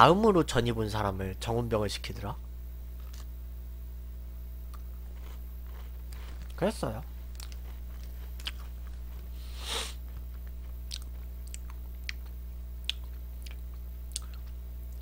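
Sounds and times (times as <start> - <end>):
electrical hum: 0.0 - 15.0
person chewing crunchy biscuit: 3.0 - 3.3, 4.7 - 15.0.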